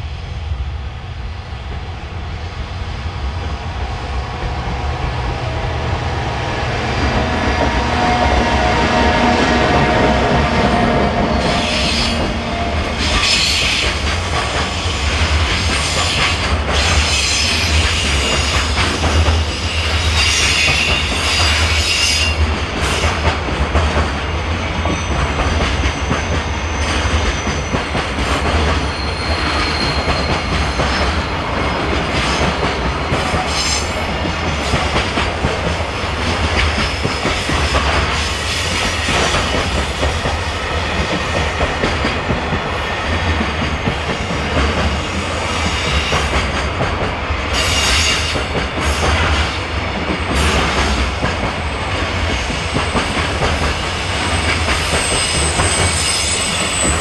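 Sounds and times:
freight train wheels clattering: 0:09.8 - 0:57.0
high wheel squeals: 0:26.7 - 0:32.9, 0:54.9 - 0:57.0.

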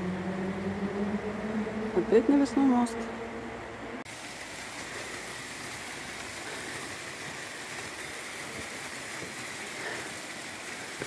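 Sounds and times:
waterfall splashing into pool: 0:04.1 - 0:11.0.

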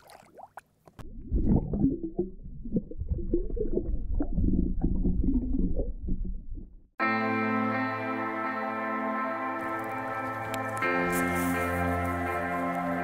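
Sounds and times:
small water splashes: 0:00.0 - 0:03.4
muffled underwater rumbling and gurgling: 0:01.0 - 0:06.9.

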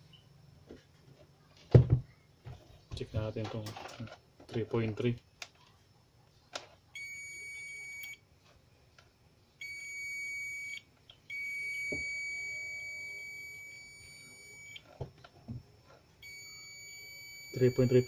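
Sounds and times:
multimeter beeping: 0:06.9 - 0:08.2, 0:09.6 - 0:14.9, 0:16.2 - 0:18.0.

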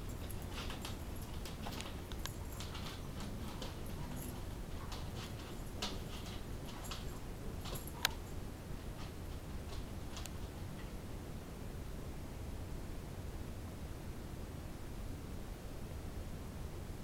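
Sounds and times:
dog claws clicking on hardwood: 0:00.1 - 0:08.3.

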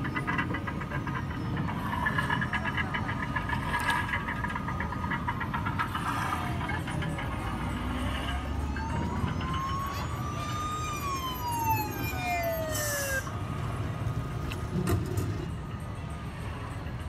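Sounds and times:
toy siren wail: 0:05.5 - 0:13.4.

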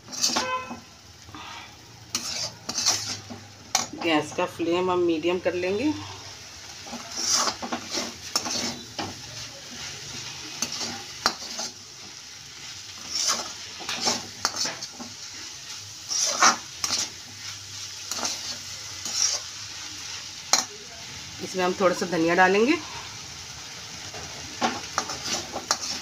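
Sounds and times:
spatula scraping metal pan: 0:00.0 - 0:00.9, 0:02.1 - 0:04.4, 0:06.8 - 0:12.1, 0:12.7 - 0:19.6, 0:24.6 - 0:26.0
faint frying sizzle: 0:00.0 - 0:26.0.

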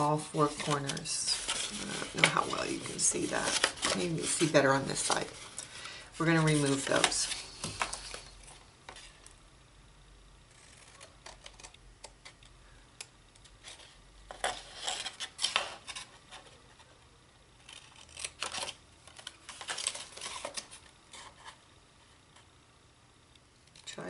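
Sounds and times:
paper handling: 0:00.4 - 0:09.2
scissors snipping paper: 0:17.6 - 0:18.8.

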